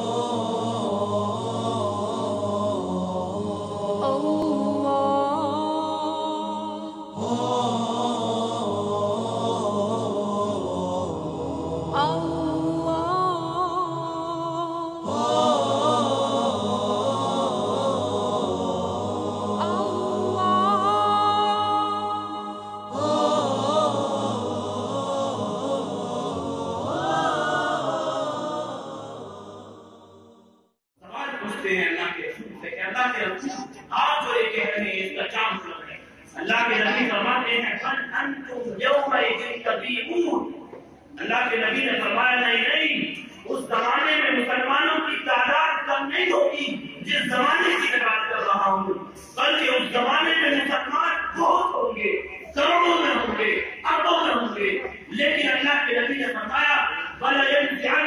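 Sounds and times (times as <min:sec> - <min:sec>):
person chanting: 0:00.0 - 0:30.2.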